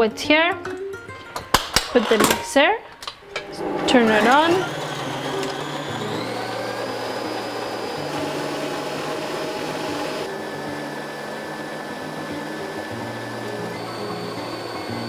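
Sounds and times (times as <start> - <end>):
stand mixer motor whine: 3.4 - 15.0.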